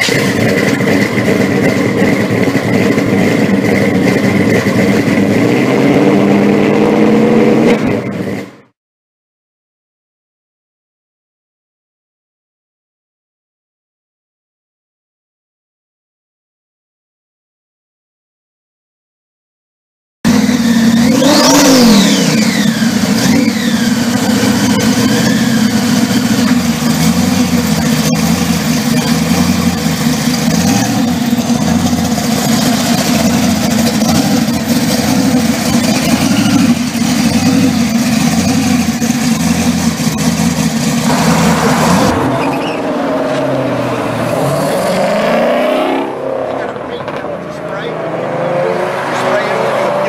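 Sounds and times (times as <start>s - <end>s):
car engine idling unevenly: 0.0s - 5.7s, 20.3s - 45.0s, 46.5s - 48.0s
car engine revving: 0.0s - 8.7s, 20.3s - 50.0s.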